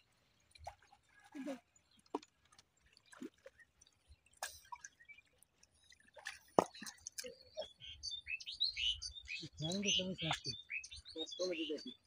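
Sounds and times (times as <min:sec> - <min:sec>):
mud dripping: 0:00.0 - 0:07.8.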